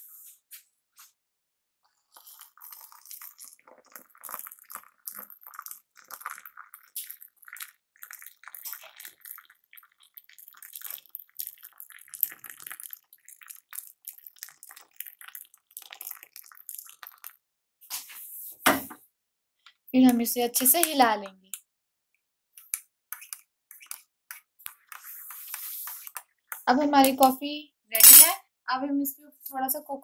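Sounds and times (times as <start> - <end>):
milk pouring and splashing into mug: 1.9 - 17.4.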